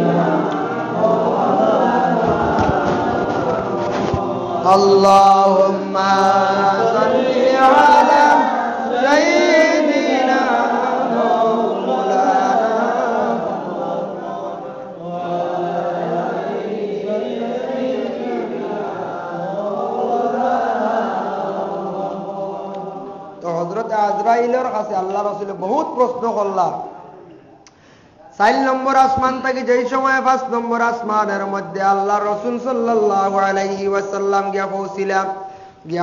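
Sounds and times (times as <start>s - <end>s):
man chanting into microphone: 0.0s - 13.6s, 23.4s - 27.2s, 28.2s - 36.0s.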